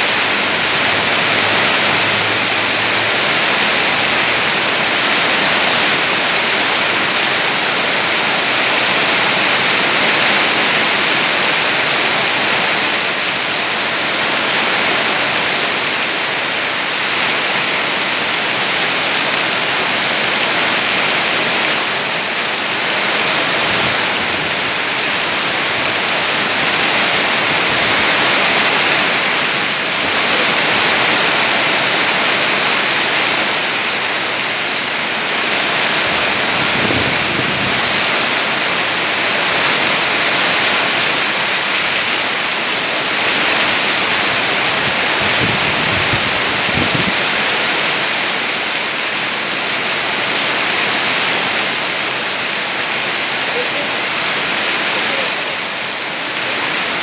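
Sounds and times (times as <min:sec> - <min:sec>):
heavy rain through foliage: 0:00.0 - 0:57.0
strong wind: 0:14.3 - 0:41.4, 0:42.9 - 0:48.9.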